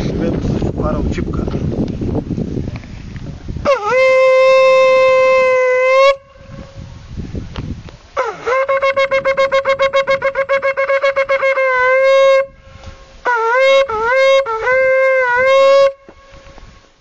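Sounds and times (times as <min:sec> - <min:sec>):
shofar blasts: 0:03.6 - 0:06.9, 0:08.2 - 0:16.6.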